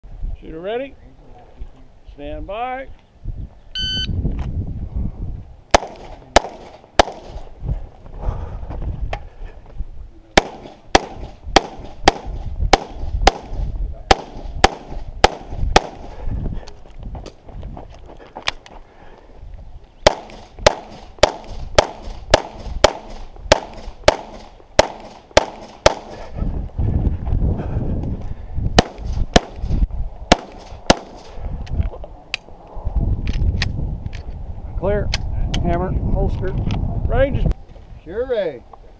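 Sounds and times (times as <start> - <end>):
pistol shots: 5.7 - 7.4, 10.4 - 16.1, 20.0 - 26.2, 28.8 - 29.6, 30.3 - 31.3.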